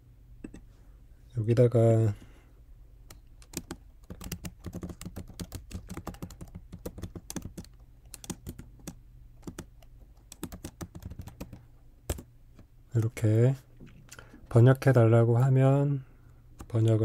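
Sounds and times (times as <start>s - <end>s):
typing on keyboard: 3.1s - 12.3s.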